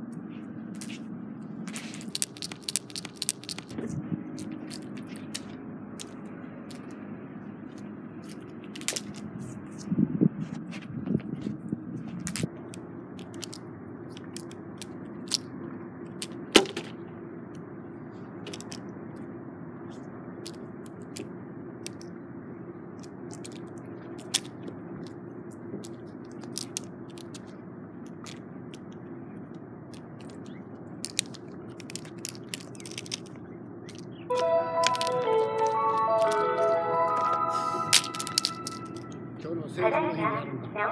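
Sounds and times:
wind rushing on microphone: 9.2 - 12.4.

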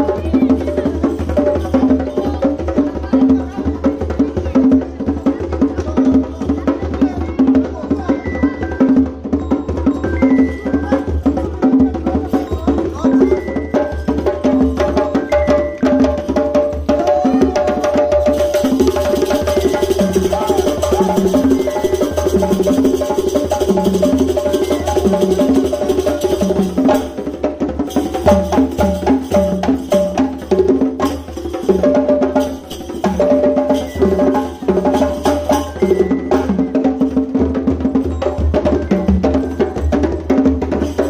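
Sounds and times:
wood-block percussion: 0.0 - 41.0
repeating melodic figure: 31.4 - 40.2.

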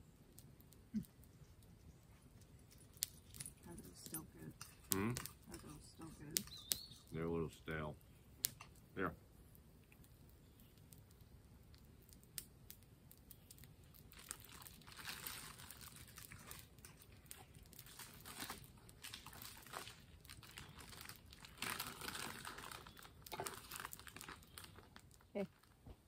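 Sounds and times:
campfire crackling pops: 0.0 - 1.8, 2.4 - 26.0
plastic snack bag crinkling: 13.4 - 25.8.

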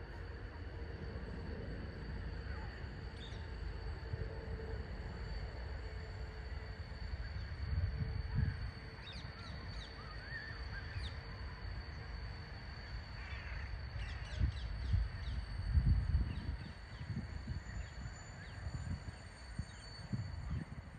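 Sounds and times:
wind buffeting microphone: 7.5 - 9.0, 14.1 - 20.9.

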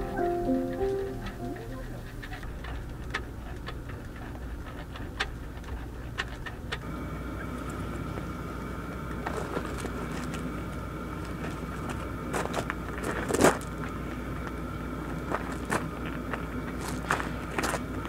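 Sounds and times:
higher-pitched whine: 0.0 - 2.1
small fan humming: 0.0 - 18.0.

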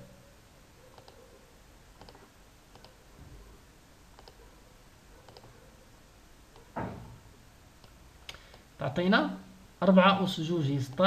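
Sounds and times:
low steady hiss: 0.0 - 11.0
computer mouse clicks: 0.9 - 1.3, 2.0 - 3.0, 4.1 - 4.4, 5.2 - 5.6, 6.5 - 6.7, 7.8 - 8.7.

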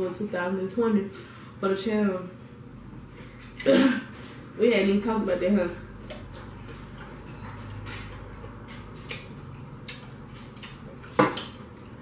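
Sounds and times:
faint chewing clicks: 9.0 - 12.0.

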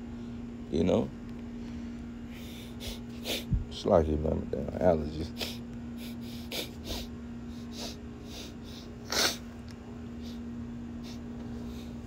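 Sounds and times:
man sniffing and snorting: 2.3 - 3.6, 5.3 - 9.4.

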